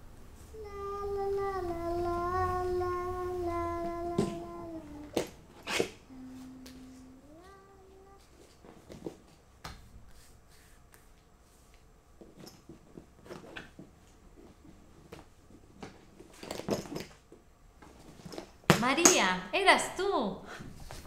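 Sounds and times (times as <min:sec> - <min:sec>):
person humming: 0:00.5 - 0:05.2, 0:06.0 - 0:08.4.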